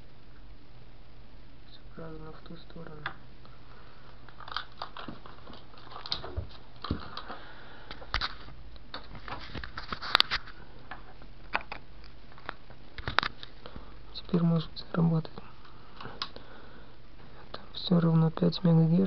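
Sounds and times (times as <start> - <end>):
handling clicks and rustles: 4.2 - 13.6.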